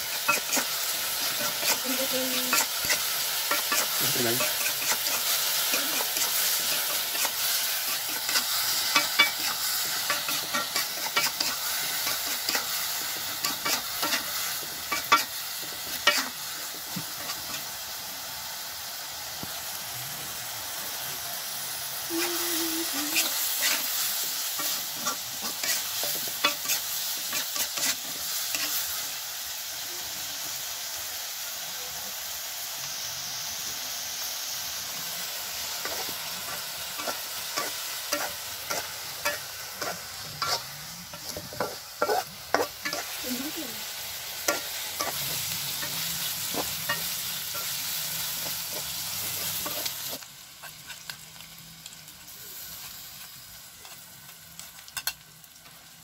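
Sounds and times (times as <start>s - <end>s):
metal spatula scraping a wok: 0.0s - 17.6s, 23.1s - 29.0s, 35.8s - 43.2s, 44.4s - 51.1s
insects sizzling in a wok: 0.0s - 56.0s.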